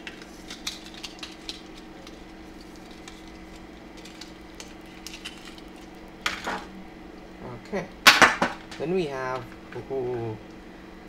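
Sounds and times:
hands handling packaging: 0.0s - 6.5s
steady low hum: 0.0s - 11.0s.

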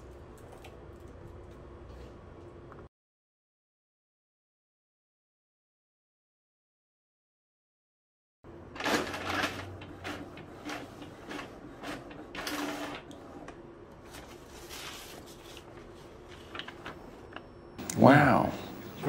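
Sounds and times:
printer carriage whirring: 8.5s - 14.5s.

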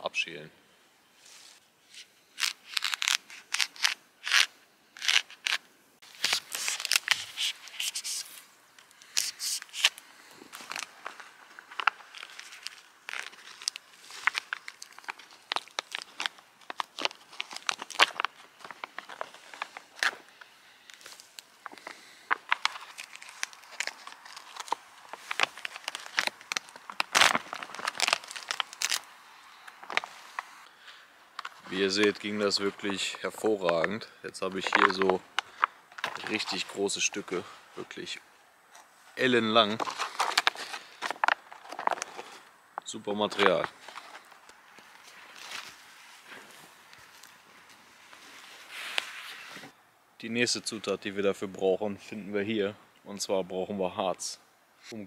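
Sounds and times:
knife scraping birch bark: 1.3s - 10.0s
birch bark peeling and crackling: 2.2s - 37.3s, 39.5s - 49.6s
bark tearing: 2.4s - 8.3s, 10.6s - 20.2s, 20.9s - 29.1s.

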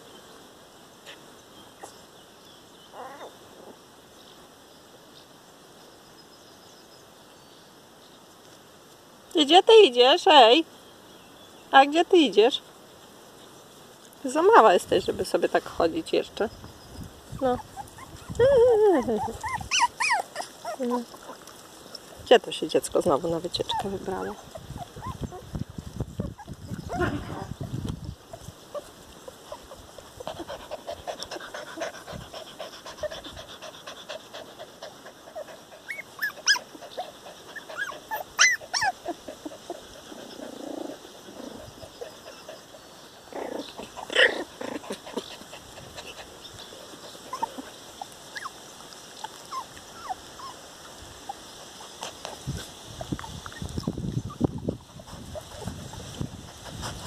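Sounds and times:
puppies squeaking and yelping: 3.0s - 3.7s, 17.2s - 22.2s, 23.6s - 25.6s, 26.2s - 57.0s.

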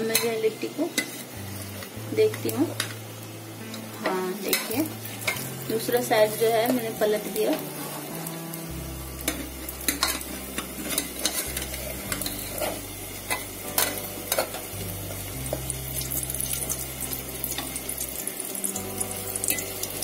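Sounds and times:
dough sizzling in a pot: 0.0s - 20.0s
metal ladle clinking and scraping: 9.3s - 14.7s.

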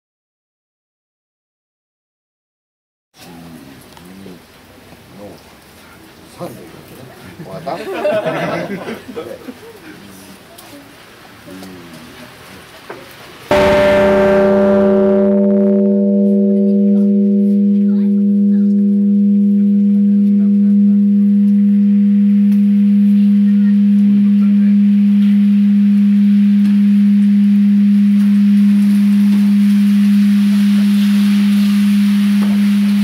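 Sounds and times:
temple bell ringing: 13.5s - 33.0s.

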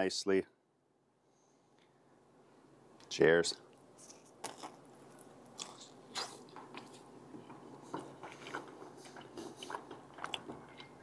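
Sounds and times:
person biting and chewing pizza: 4.0s - 11.0s.

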